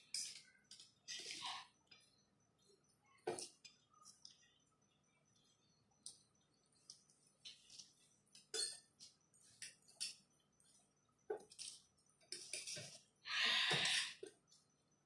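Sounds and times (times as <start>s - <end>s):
forks clinking in metal bowls: 0.0s - 1.4s, 8.4s - 8.9s.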